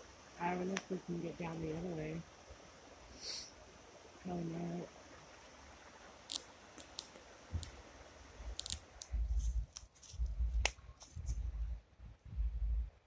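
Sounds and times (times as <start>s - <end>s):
sharp clicks and snaps: 6.3s - 7.8s, 8.5s - 11.4s
footsteps in wet woodland: 8.8s - 11.6s
dull low thuds: 9.1s - 13.0s.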